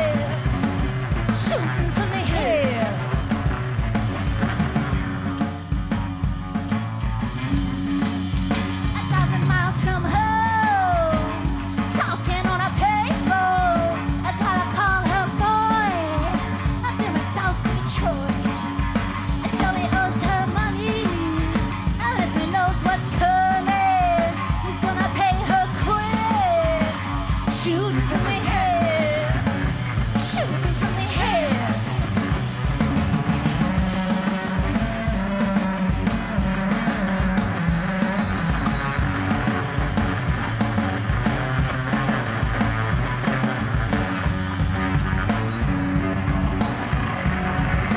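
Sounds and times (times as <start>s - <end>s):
woman singing: 0.0s - 0.6s, 1.3s - 3.2s, 8.8s - 32.0s
distorted electric guitar: 0.0s - 47.9s
drums: 0.0s - 47.9s.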